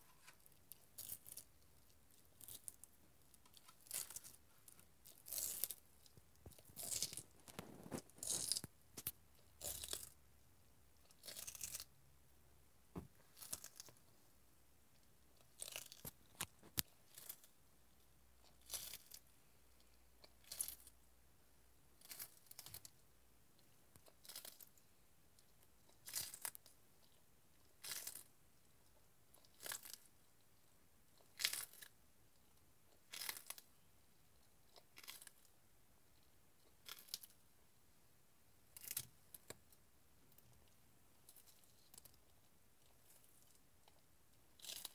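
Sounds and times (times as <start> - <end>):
tortoise crunching celery: 0.0 - 10.2, 11.0 - 12.0, 13.3 - 14.0, 15.4 - 17.6, 18.4 - 21.1, 22.0 - 23.0, 23.9 - 24.9, 25.8 - 30.1, 31.1 - 31.9, 32.9 - 33.8, 34.4 - 35.5, 36.6 - 37.4, 38.7 - 39.7, 41.2 - 44.9.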